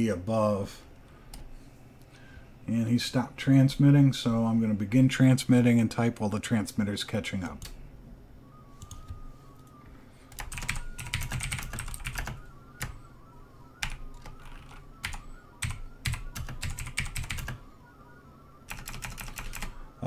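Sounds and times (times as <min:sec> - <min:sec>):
keyboard typing: 0:08.8 - 0:09.7, 0:10.3 - 0:13.0, 0:13.8 - 0:17.6, 0:18.7 - 0:19.8.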